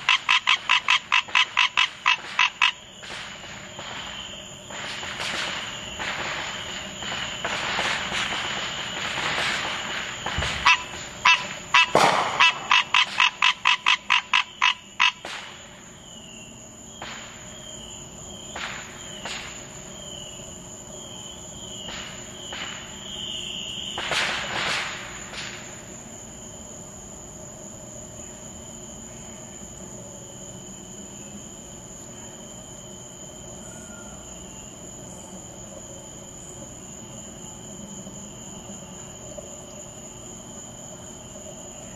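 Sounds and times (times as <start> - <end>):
tree frog calling: 0.0 - 2.9, 10.6 - 15.2
distant fireworks popping: 0.0 - 14.3, 15.2 - 15.9, 16.9 - 17.5, 18.5 - 19.9, 21.8 - 26.0.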